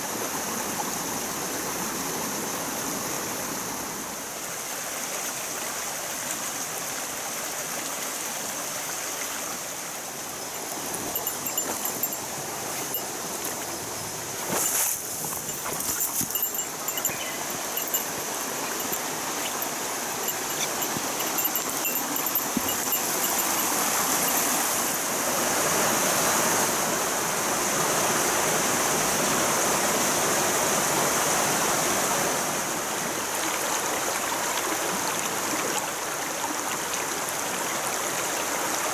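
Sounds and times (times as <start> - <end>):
stream rushing over rocks: 0.0 - 38.9.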